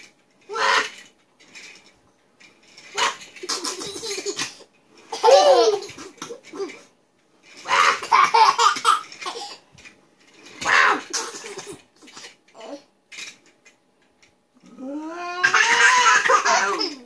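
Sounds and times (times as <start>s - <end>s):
toddler laughing: 3.0s - 6.9s, 7.7s - 9.6s, 15.3s - 17.0s.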